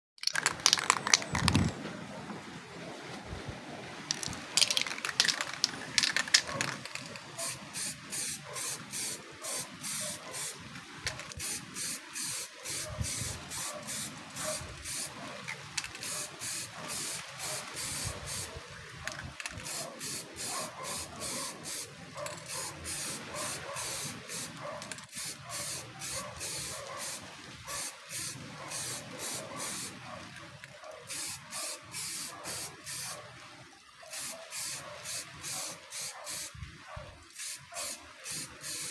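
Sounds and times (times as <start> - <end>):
spray can ball rattling: 0.2 - 1.7, 4.1 - 18.5, 19.1 - 27.2, 27.8 - 30.0, 31.1 - 33.1, 34.1 - 36.5, 37.4 - 38.9
spray paint hissing bursts: 4.1 - 10.6, 11.2 - 15.1, 15.8 - 18.5, 19.5 - 27.2, 27.8 - 30.0, 31.1 - 33.2, 34.1 - 36.6, 37.4 - 38.9.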